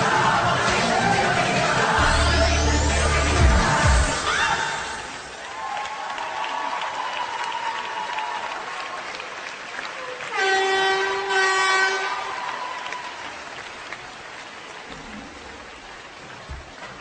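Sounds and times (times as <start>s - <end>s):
crowd applauding and cheering: 0.0s - 17.0s
loud horn blast: 10.3s - 12.4s.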